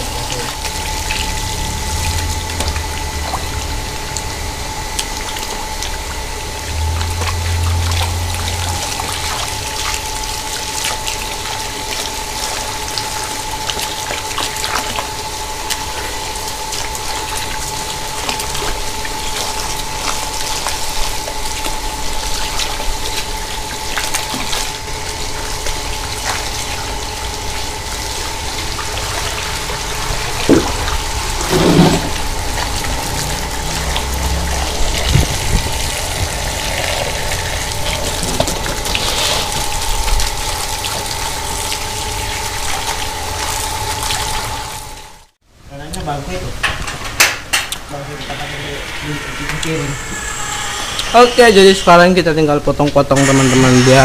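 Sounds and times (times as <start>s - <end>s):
water running from a hose: 0.0s - 45.2s, 53.2s - 54.0s
water splashing over fruit: 5.0s - 44.8s.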